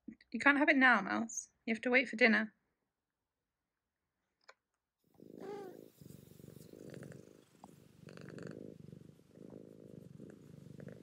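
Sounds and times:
cat purring: 0:05.1 - 0:11.0.

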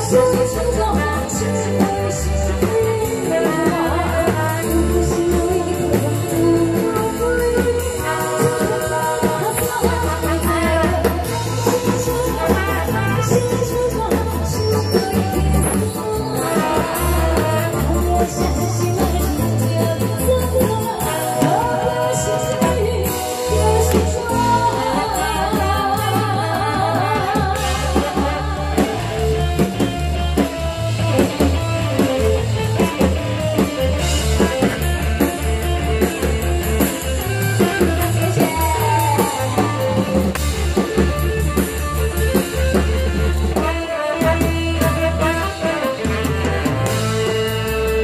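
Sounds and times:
woman singing pop song: 0:00.0 - 0:30.5, 0:37.5 - 0:40.6, 0:43.6 - 0:46.7
live band with drums and bass: 0:00.0 - 0:48.0.

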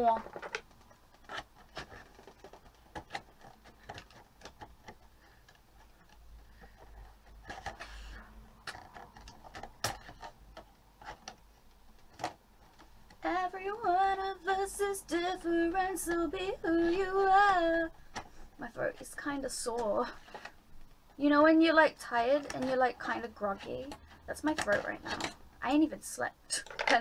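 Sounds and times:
woman singing: 0:13.2 - 0:17.9.

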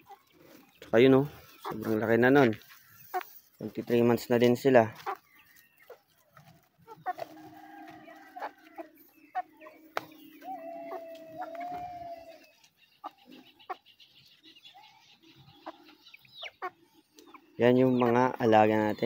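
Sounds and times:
hens clucking softly: 0:00.0 - 0:13.8, 0:14.7 - 0:19.0
hen drawn-out call: 0:10.3 - 0:12.5.

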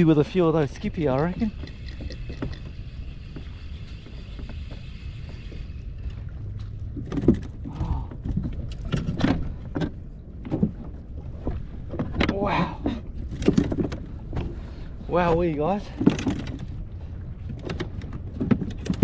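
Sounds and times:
water against hull: 0:00.0 - 0:19.0
fishing gear knocking and clicking: 0:01.1 - 0:04.8, 0:13.2 - 0:14.5, 0:15.9 - 0:16.8, 0:17.5 - 0:19.0.

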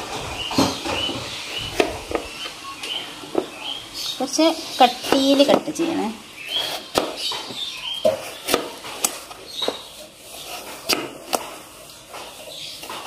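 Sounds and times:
knife slicing potato: 0:04.8 - 0:05.6, 0:06.5 - 0:07.3, 0:08.0 - 0:11.6.

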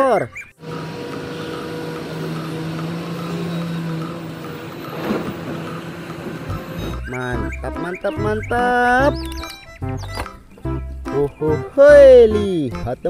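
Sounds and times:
excavator diesel engine running: 0:00.6 - 0:10.8.

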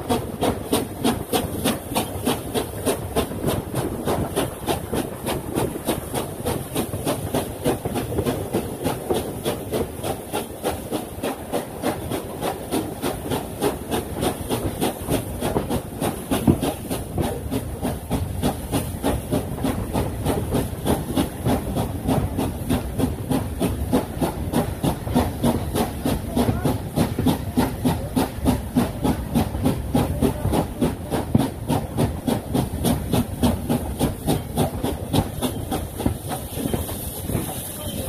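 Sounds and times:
steam hiss and running noise: 0:00.0 - 0:38.0
steam locomotive exhaust beats: 0:00.0 - 0:38.0.

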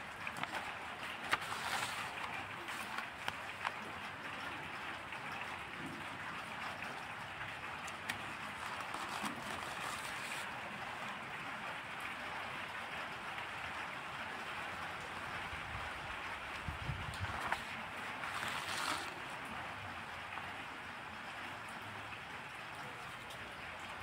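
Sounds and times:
paper pages rustling: 0:00.2 - 0:03.8, 0:07.8 - 0:10.6, 0:17.2 - 0:19.3.

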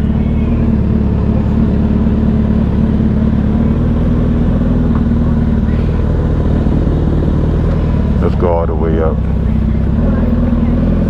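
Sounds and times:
motorcycle engine running at low revs: 0:00.0 - 0:11.0.

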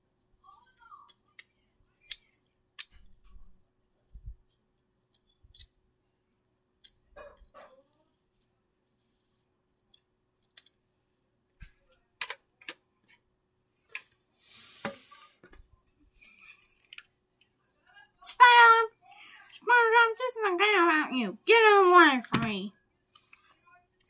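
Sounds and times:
small plastic clicks and taps: 0:11.6 - 0:13.2.

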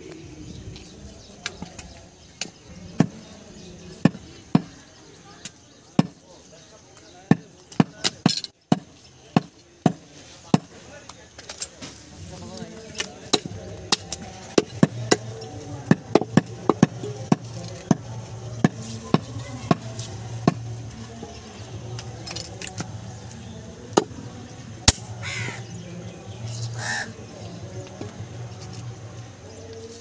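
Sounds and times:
cleaver chopping meat on wood: 0:13.4 - 0:20.7.

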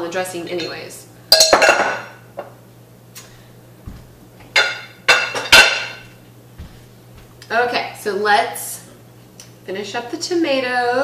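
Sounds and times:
glass bowls clinking: 0:00.6 - 0:02.1, 0:04.6 - 0:06.0.

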